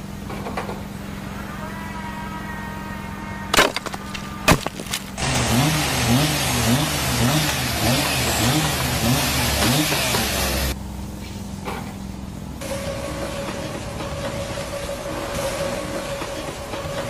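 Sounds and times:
machine motor hissing and humming: 0:05.0 - 0:10.8.

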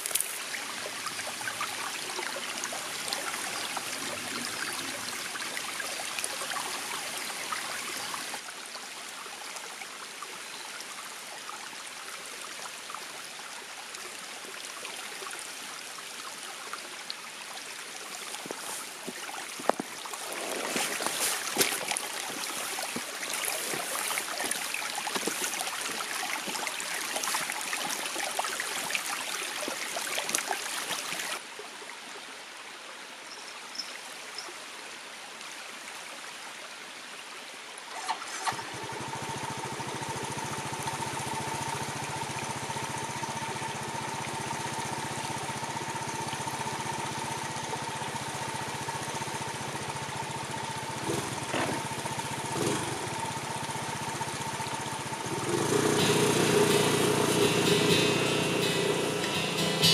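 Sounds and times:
footsteps on loose stones: 0:00.0 - 0:00.4, 0:18.1 - 0:28.0
stream flowing over rocks: 0:00.0 - 0:59.9.

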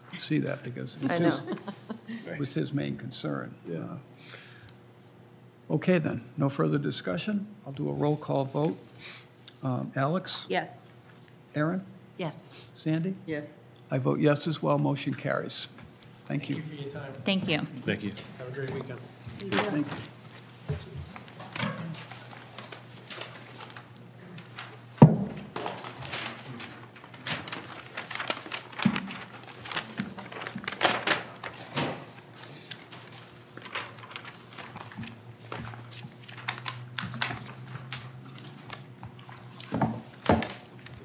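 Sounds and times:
paper rustling and shuffling: 0:18.0 - 0:41.0.

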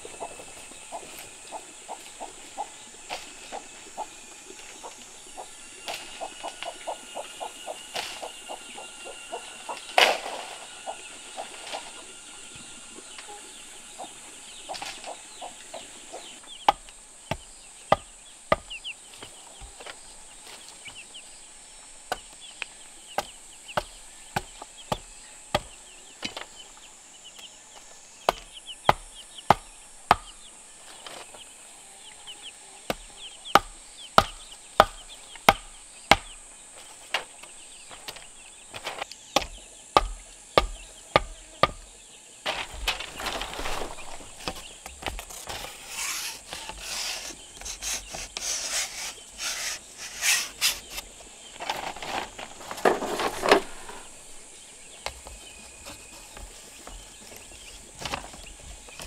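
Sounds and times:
chickens clucking: 0:00.0 - 0:59.0
high insect drone: 0:00.0 - 0:59.0
sharp chopping strokes: 0:00.9 - 0:13.3, 0:14.0 - 0:19.9, 0:28.2 - 0:30.4, 0:32.9 - 0:37.4, 0:38.0 - 0:41.8, 0:43.4 - 0:52.3.

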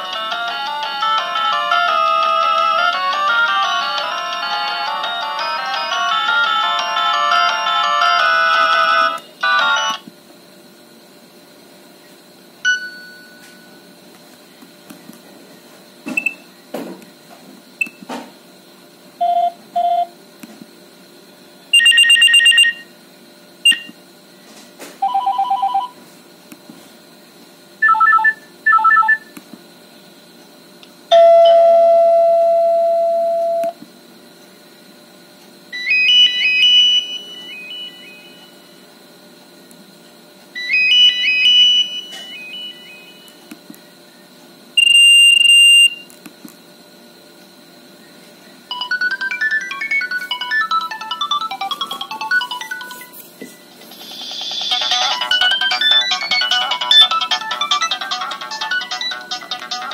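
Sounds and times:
phone ringtone previews: 0:48.7 - 0:53.2, 0:54.0 - 0:59.9.

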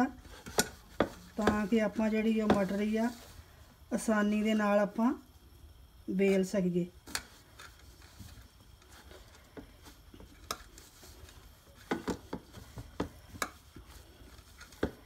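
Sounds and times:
hands kneading dough: 0:00.0 - 0:03.4.

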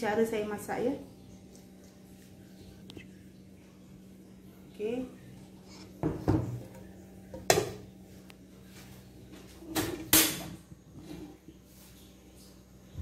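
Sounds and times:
dishes and wok knocking: 0:06.0 - 0:07.9.

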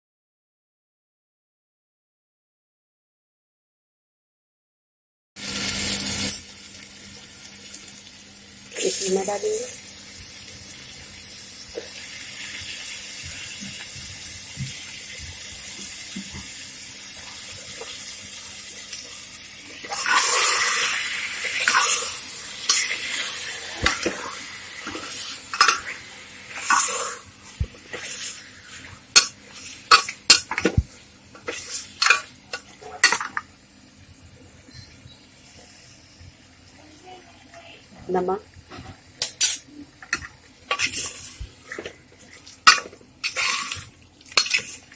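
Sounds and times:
meat sizzling in hot oil: 0:05.4 - 0:34.2, 0:35.1 - 0:44.9
spatula scraping a cooker: 0:31.4 - 0:33.4, 0:40.2 - 0:44.9.

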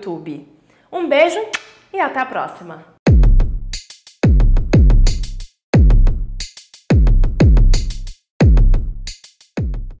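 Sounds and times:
deep bass drum hits: 0:03.1 - 0:05.2, 0:05.8 - 0:06.3, 0:08.4 - 0:09.0.

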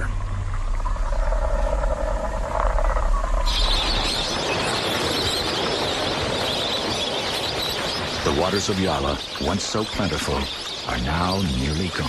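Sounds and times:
low hum: 0:00.0 - 0:07.2
high-pitched wildlife chorus: 0:00.0 - 0:12.0.

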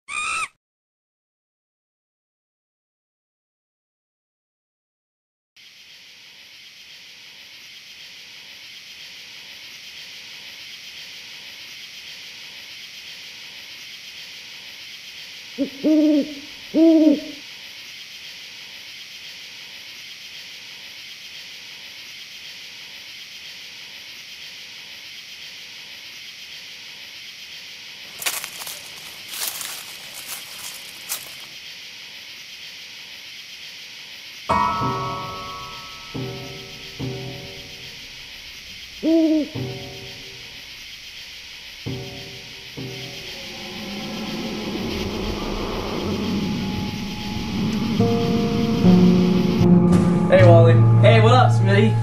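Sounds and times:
owl hooting: 0:00.1 - 0:00.6, 0:15.6 - 0:17.4, 0:38.8 - 0:40.6
steady high-pitched hiss: 0:05.6 - 0:52.0
short crackle: 0:28.1 - 0:31.5.

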